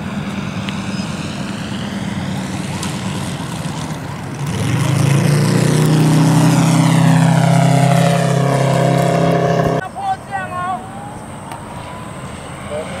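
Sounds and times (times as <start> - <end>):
model plane engine droning: 0.0 - 9.8.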